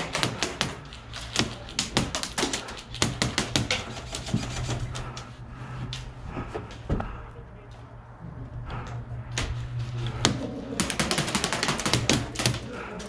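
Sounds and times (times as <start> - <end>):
airsoft guns firing: 10.2 - 12.8.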